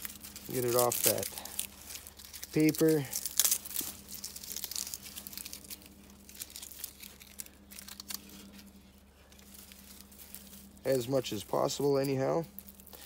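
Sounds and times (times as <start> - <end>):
paper and tape tearing: 0.0 - 8.7
faint steady hum: 0.0 - 13.0.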